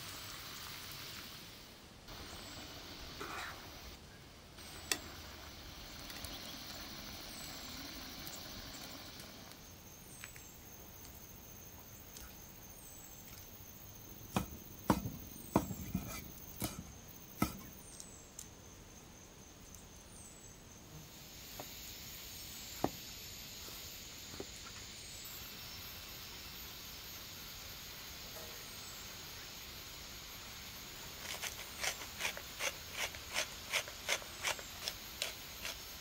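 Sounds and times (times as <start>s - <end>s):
soft steady hiss: 0.0s - 36.0s
cleaver chopping on wooden block: 14.3s - 16.8s, 17.4s - 17.7s.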